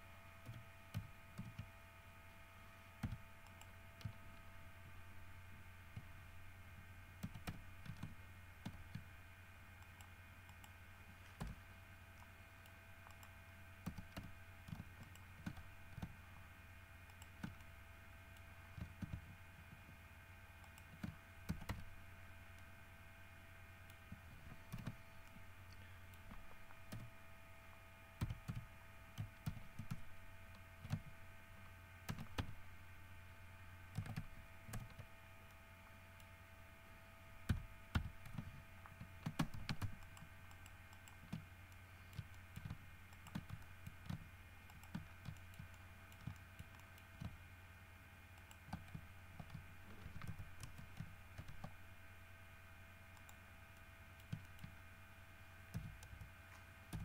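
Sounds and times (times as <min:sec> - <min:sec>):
faint electrical hum: 0:00.0 - 0:57.0
keyboard and mouse clicking: 0:00.4 - 0:01.7, 0:03.0 - 0:04.4, 0:07.2 - 0:09.1, 0:11.4 - 0:11.6, 0:12.2 - 0:16.1, 0:17.1 - 0:17.7, 0:18.8 - 0:19.3, 0:20.6 - 0:21.9, 0:23.9 - 0:27.1, 0:28.2 - 0:31.1, 0:32.1 - 0:32.6, 0:33.9 - 0:35.1, 0:37.5 - 0:47.4, 0:48.4 - 0:51.8, 0:53.1 - 0:54.8, 0:55.7 - 0:57.0.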